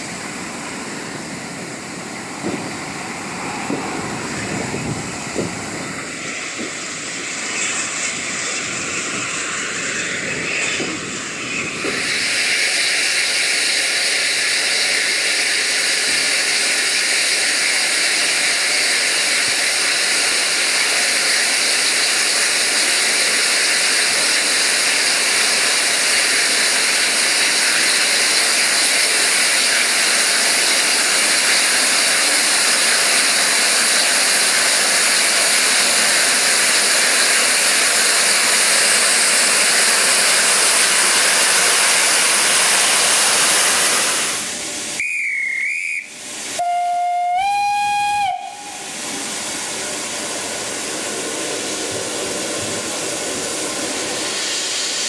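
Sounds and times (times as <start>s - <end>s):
steam hissing: 0.0s - 55.0s
steam locomotive whistle: 45.0s - 49.0s
warbling high whistle: 45.0s - 49.0s.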